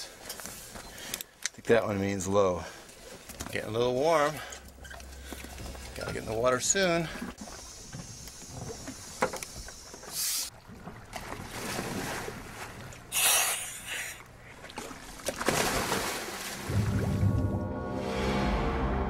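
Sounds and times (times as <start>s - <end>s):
divers splashing into water: 14.7s - 17.4s.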